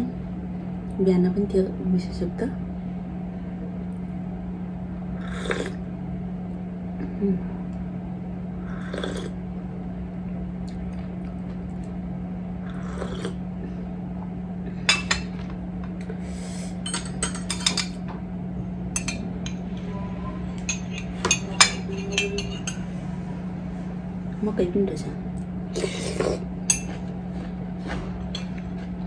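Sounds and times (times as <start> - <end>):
steady low hum: 0.0 - 29.0
person sipping soup: 8.7 - 9.4
spoon clinking against dishes: 16.8 - 18.0, 18.9 - 20.0, 20.6 - 22.9, 26.7 - 27.0.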